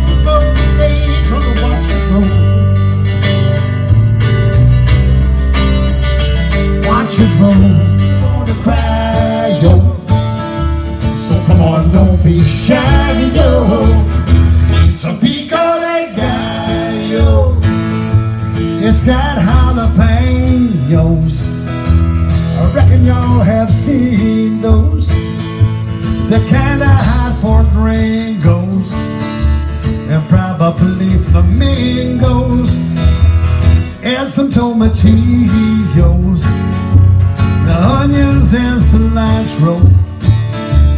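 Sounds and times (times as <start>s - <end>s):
man singing: 0.0s - 2.7s, 6.7s - 18.0s, 18.6s - 21.7s, 22.5s - 25.4s, 26.1s - 29.2s, 30.0s - 33.0s, 33.9s - 36.8s, 37.6s - 40.1s
guitar: 0.0s - 40.9s
plucked bass line: 0.0s - 40.9s.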